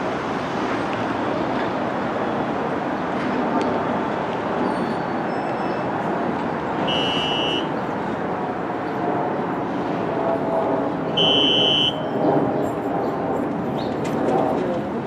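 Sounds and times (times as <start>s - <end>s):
subway station rumble: 0.0s - 15.0s
high-pitched buzzer tones: 6.8s - 7.7s, 11.2s - 12.0s.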